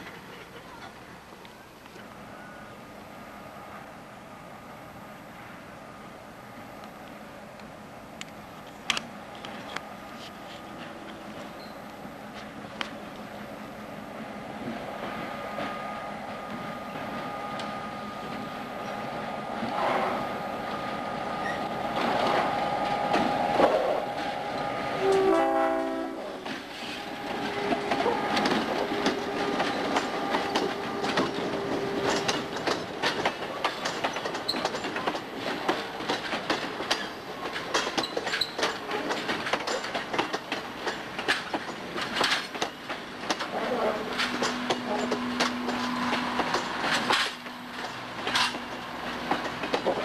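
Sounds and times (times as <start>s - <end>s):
train wheels clacking on rails: 10.6s - 50.0s
train horn: 25.0s - 29.6s.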